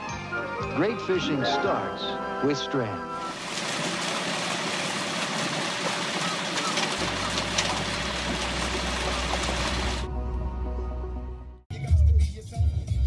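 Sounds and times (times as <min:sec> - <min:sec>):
water gushing into a pond: 0:03.3 - 0:10.0.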